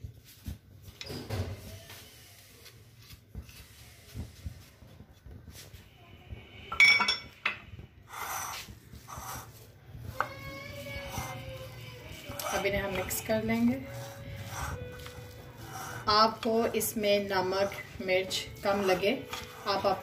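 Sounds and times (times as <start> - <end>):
dishes clinking: 6.7 - 7.6
spatula scraping: 8.0 - 20.0.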